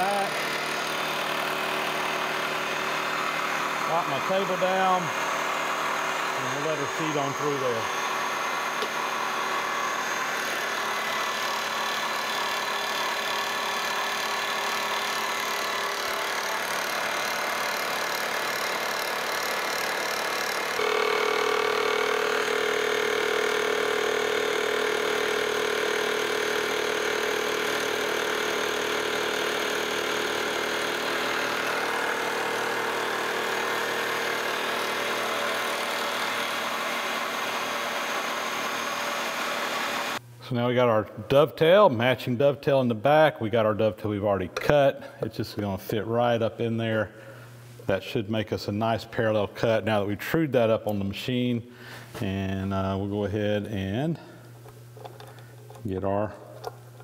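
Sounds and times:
milling machine hum: 0.0s - 40.3s
cutter tone: 6.4s - 10.8s, 20.2s - 27.2s.

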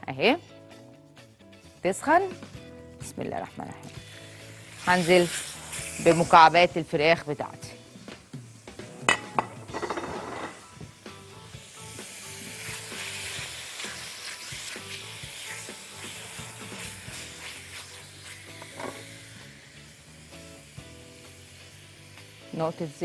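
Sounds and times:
chicken sizzling in oil: 3.9s - 23.0s
pieces clattering into pan: 9.1s - 10.6s.

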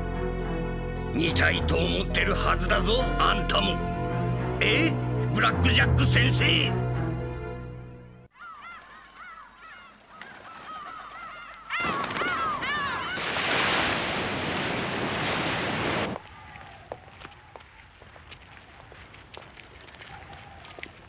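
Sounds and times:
crows cawing: 8.3s - 13.4s, 19.9s - 21.0s.

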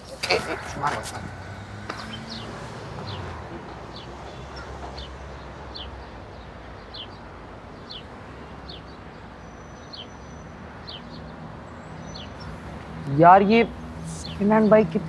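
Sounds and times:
bird chirping: 0.0s - 15.0s.

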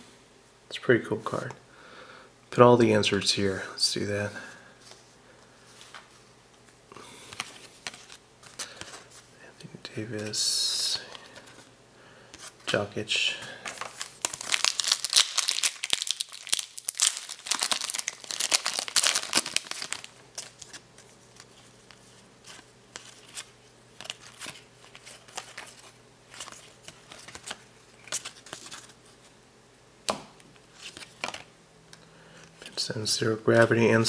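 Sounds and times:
cards clicking and rustling: 7.2s - 9.2s, 13.6s - 29.0s, 30.1s - 31.5s
foil wrapper crinkling and tearing: 13.8s - 20.8s.

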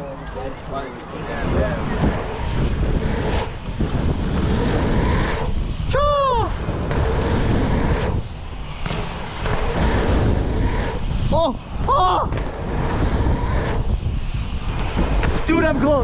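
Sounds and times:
bike tyres rolling on dirt: 0.0s - 16.0s
wind rushing over microphone: 0.0s - 16.0s
person whooping: 5.9s - 6.6s, 11.3s - 12.3s.

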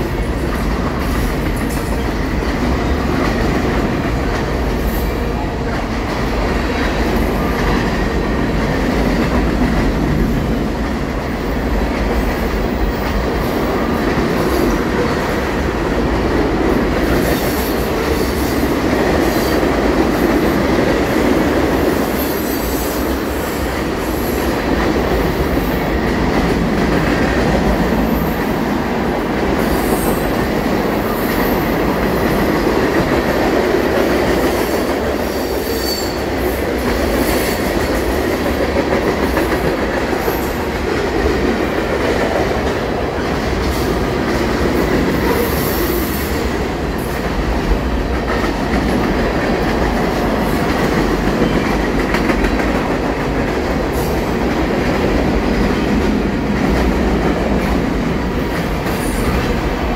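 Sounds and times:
freight train wheels rumbling: 0.0s - 59.9s
high-pitched wheel squeals: 35.6s - 36.2s.

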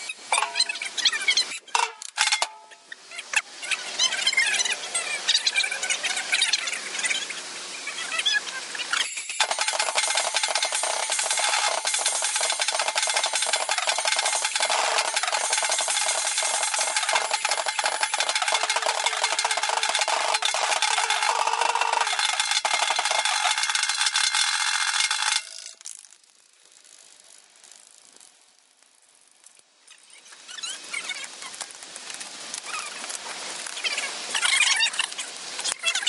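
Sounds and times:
rapid drum hits and cymbals: 9.2s - 25.5s.

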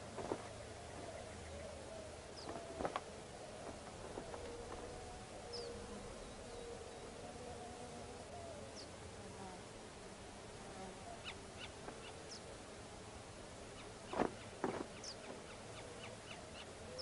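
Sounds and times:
flying insect buzzing: 2.1s - 17.0s
faint high bird chirps: 4.2s - 7.1s.

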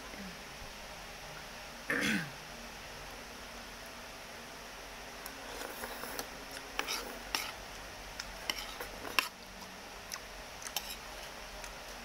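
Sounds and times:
slurping noodles: 5.4s - 7.6s
fork clicking and scraping bowl: 5.5s - 7.6s, 8.2s - 9.5s, 10.1s - 11.8s.

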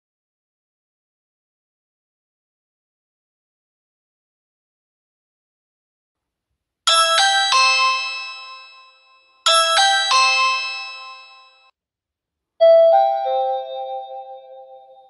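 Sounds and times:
doorbell chime bright notes: 6.9s - 11.7s, 12.6s - 15.0s
lower doorbell chime: 6.9s - 11.7s, 12.6s - 15.0s.

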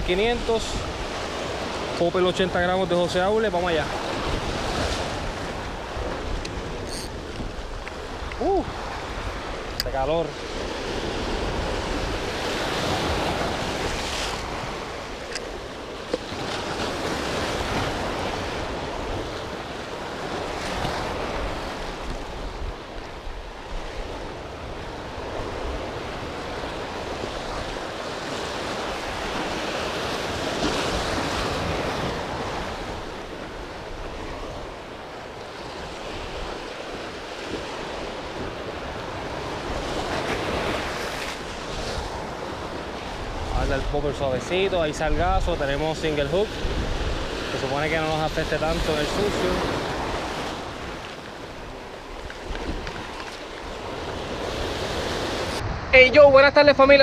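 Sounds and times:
waves on rocky shore: 0.0s - 57.0s
wind buffeting microphone: 46.4s - 47.9s, 48.6s - 57.0s.

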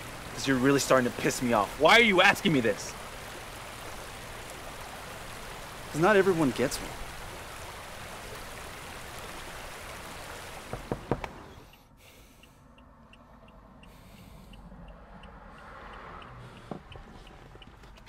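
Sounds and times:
sharp knocks: 10.6s - 11.4s
faint regular ticking: 11.2s - 18.0s.

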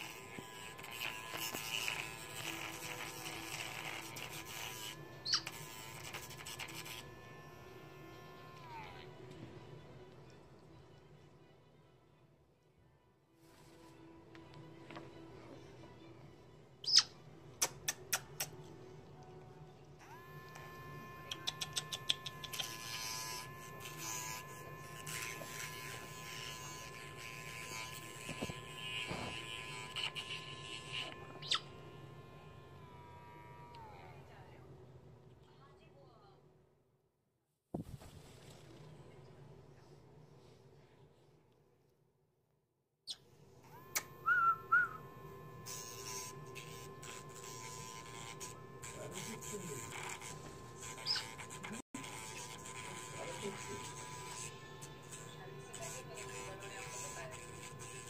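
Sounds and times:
electric nail grinder whine: 0.0s - 9.5s, 20.0s - 34.4s, 43.6s - 58.0s
short high squeak: 50.0s - 51.7s.

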